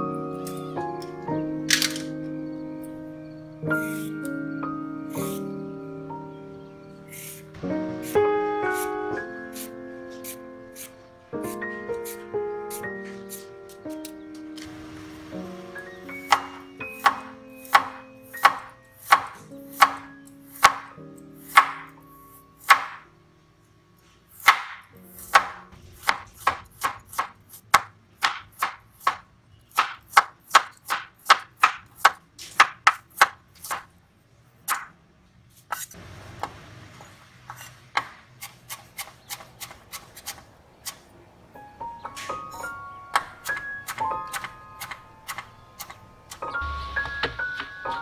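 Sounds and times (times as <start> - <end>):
cleaver chopping on cutting board: 16.3 - 20.9, 21.5 - 21.9, 22.7 - 23.0, 24.4 - 29.2, 43.2 - 46.4.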